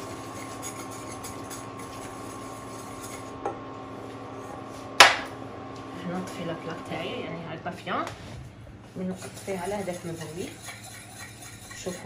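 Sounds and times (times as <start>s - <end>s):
whisk stirring in a metal saucepan: 0.0s - 3.4s, 9.0s - 12.0s.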